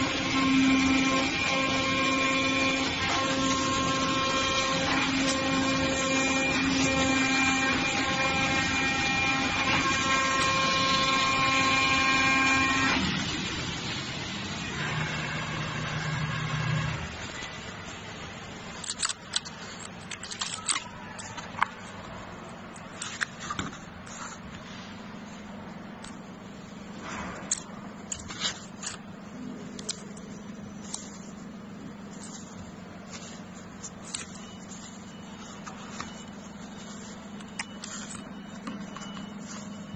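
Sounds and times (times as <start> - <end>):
cutting machine whine: 0.0 - 17.5, 34.0 - 39.9
machine noise: 0.0 - 39.9.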